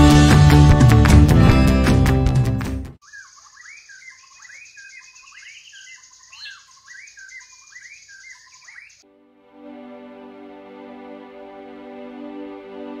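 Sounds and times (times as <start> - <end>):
birds chirping: 3.0 - 9.0.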